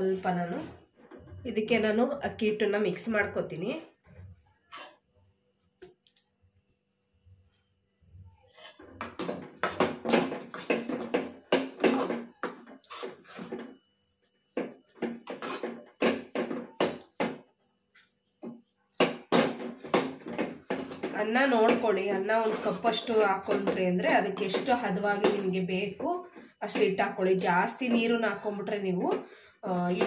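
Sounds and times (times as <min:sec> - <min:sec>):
spoon scraping metal pan: 0:04.7 - 0:05.0, 0:21.7 - 0:26.0.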